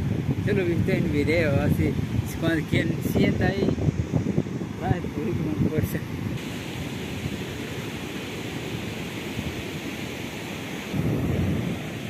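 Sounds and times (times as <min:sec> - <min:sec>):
wind buffeting microphone: 0:00.0 - 0:12.0
ocean surf hiss: 0:06.0 - 0:12.0.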